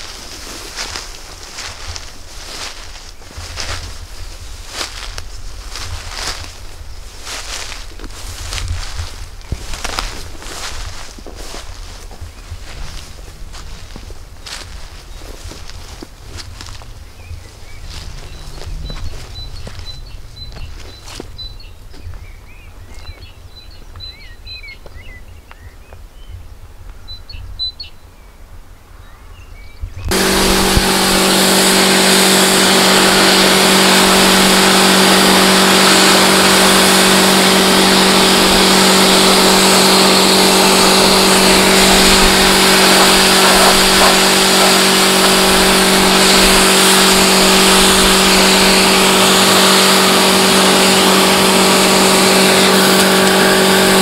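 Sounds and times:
pressure washer motor hum: 0.0s - 21.7s, 30.1s - 54.0s
water jet spraying: 30.1s - 54.0s.

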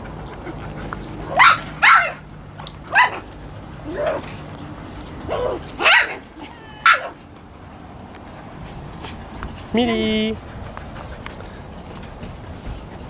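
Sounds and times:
dogs barking: 0.0s - 7.2s.

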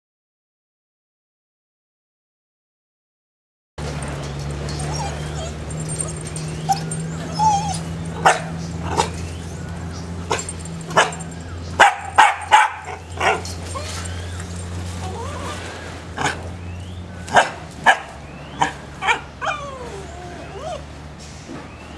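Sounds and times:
dogs barking: 3.8s - 20.9s
dog whining: 4.4s - 9.4s, 10.3s - 16.4s, 18.6s - 20.9s.

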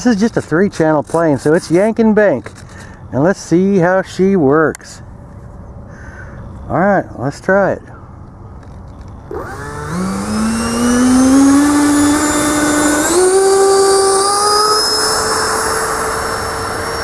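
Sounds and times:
electric ducted fan whine: 9.2s - 17.0s.

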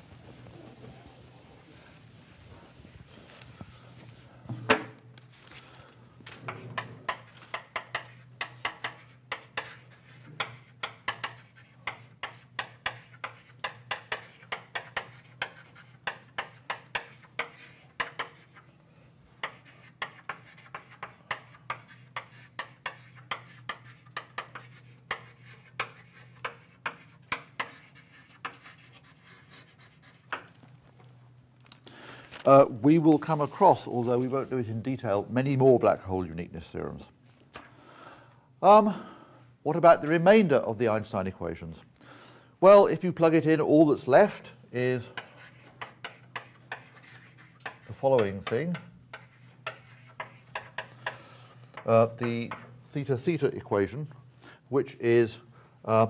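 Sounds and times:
chalk tapping and scraping: 0.0s - 4.3s, 6.4s - 18.7s, 19.4s - 30.7s, 44.9s - 53.3s
chalk knock on blackboard: 6.5s - 18.6s, 19.4s - 28.6s, 45.2s - 51.2s.

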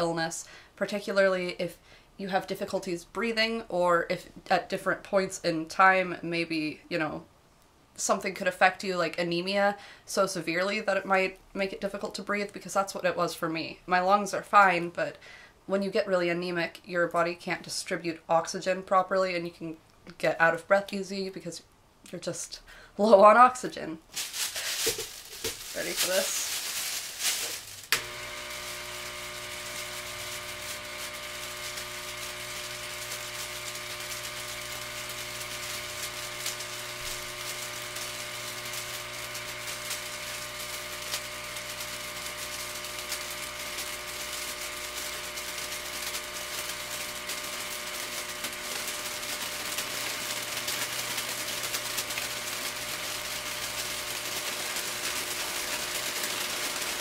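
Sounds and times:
air pump humming and hissing: 24.2s - 57.0s.

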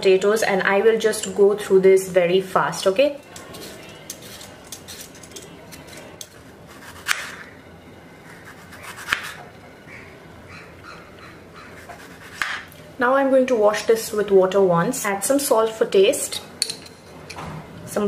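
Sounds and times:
peeler scraping potato: 3.2s - 7.4s, 8.3s - 9.4s, 11.7s - 12.6s
knife slicing on cutting board: 8.4s - 9.4s, 11.8s - 12.6s.

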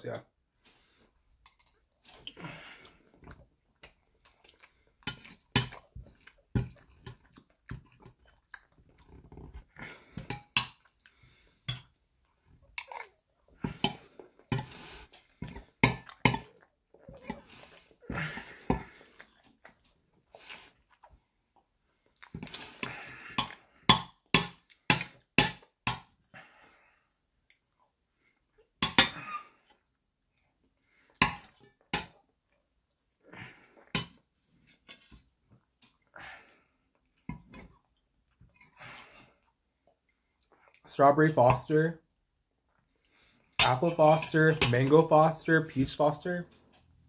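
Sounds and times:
chewing and lip-smacking: 1.3s - 9.6s, 12.2s - 18.0s, 19.0s - 21.3s, 22.0s - 25.2s.

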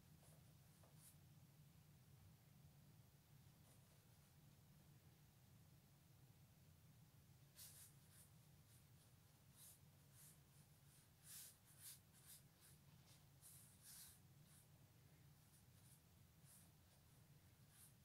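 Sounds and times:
brush strokes on paper: 0.0s - 1.2s, 7.5s - 18.0s
low steady hum: 0.0s - 18.0s.

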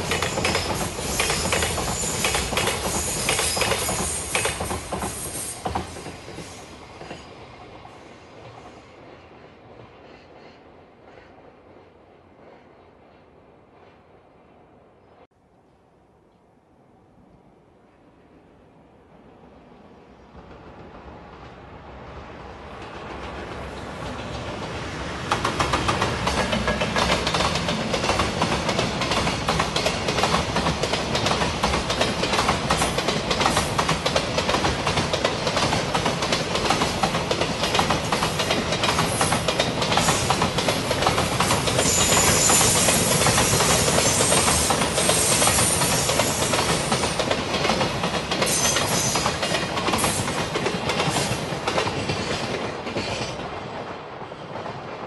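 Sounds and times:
wheels clacking over rail joints: 0.0s - 7.8s, 22.7s - 55.0s
freight train rumbling past: 0.0s - 15.3s, 16.7s - 55.0s.

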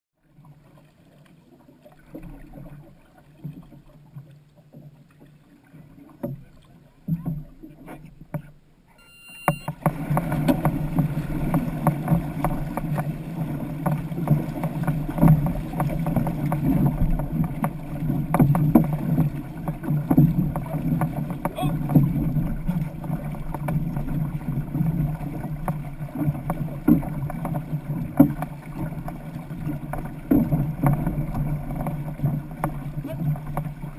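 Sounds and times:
paddle splashes: 0.2s - 33.9s
rushing water: 0.2s - 33.9s
paddle knocks: 9.4s - 33.9s.

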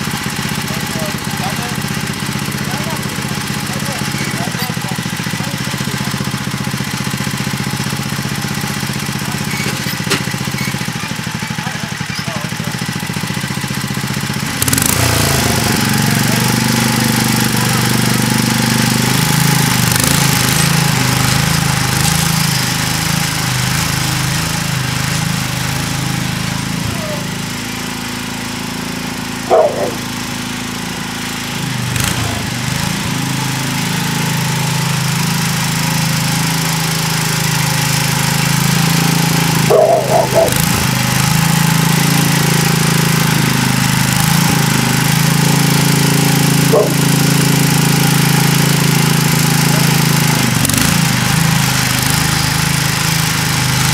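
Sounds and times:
garden tractor engine running: 0.0s - 53.9s.

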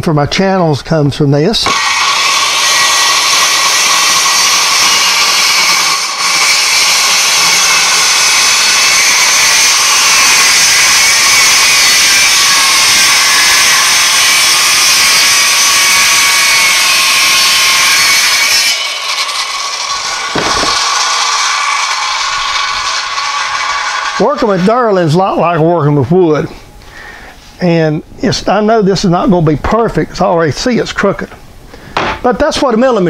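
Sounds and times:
circular saw cutting plastic: 1.7s - 24.9s.

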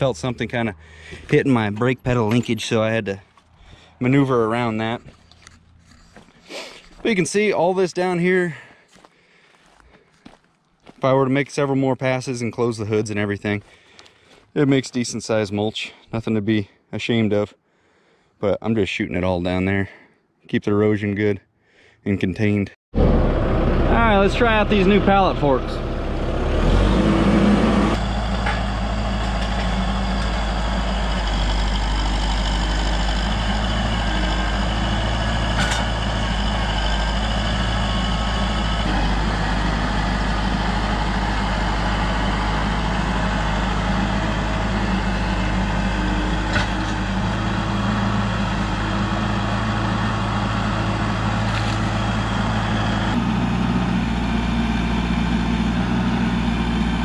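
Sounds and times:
tractor diesel engine running: 0.0s - 11.0s, 23.0s - 57.0s.

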